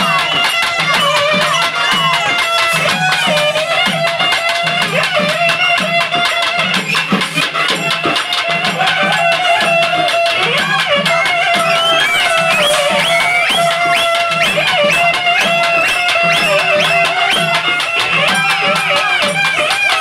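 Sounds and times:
steady drumbeat: 0.0 - 20.0.

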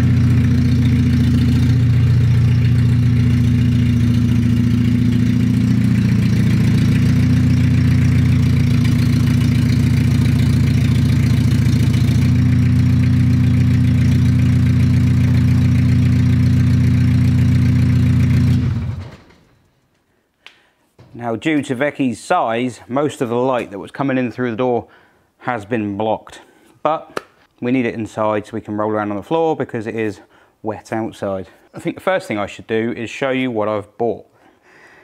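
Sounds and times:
diesel van engine running: 0.0 - 19.2.

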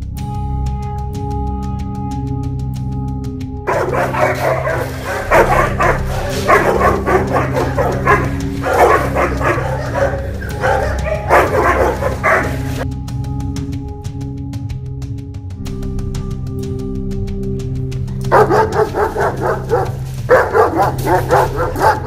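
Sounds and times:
background music: 0.0 - 22.0
dogs barking: 3.7 - 12.8, 18.2 - 22.0.

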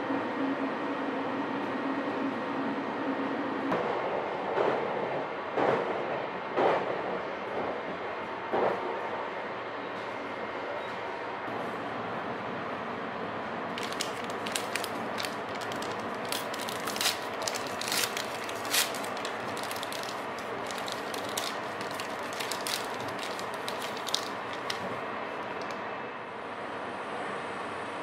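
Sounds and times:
train running noise: 0.0 - 28.0
plastic wrapper crinkling: 13.7 - 25.8.

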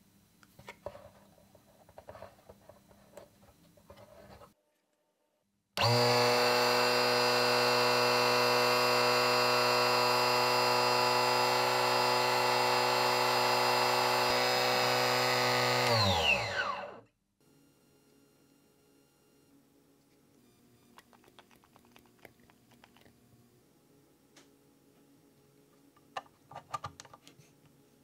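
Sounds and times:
saw blade spinning down: 5.8 - 17.0
table saw motor whining: 5.8 - 17.0.

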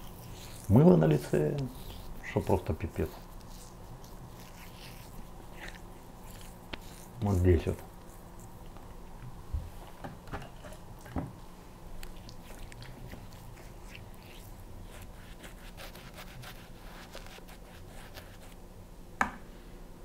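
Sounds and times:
razor scratching stubble: 0.0 - 8.8, 12.0 - 18.6.

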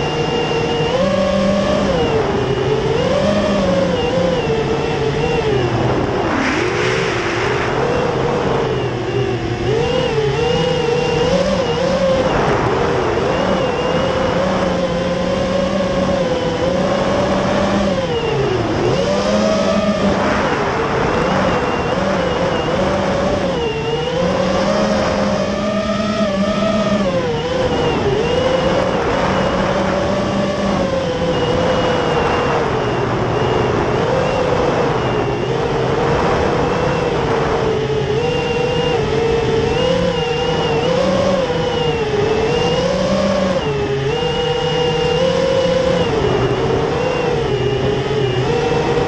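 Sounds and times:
drone propellers whining: 0.0 - 49.0
rushing air: 5.5 - 9.1, 20.0 - 22.2.

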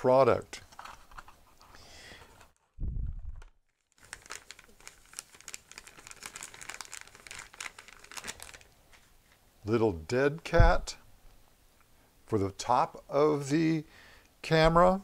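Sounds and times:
low thump: 2.8 - 3.5, 10.5 - 11.0
plastic bag crinkling: 3.3 - 9.4.

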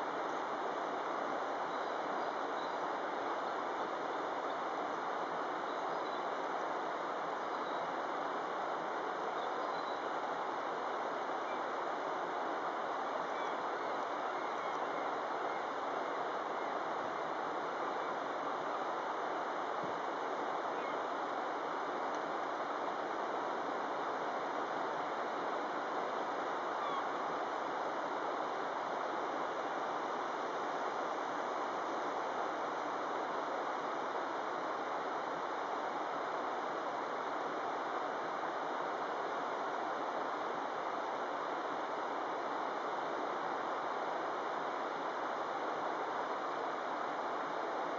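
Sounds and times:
river water rushing over rocks: 10.0 - 47.9.

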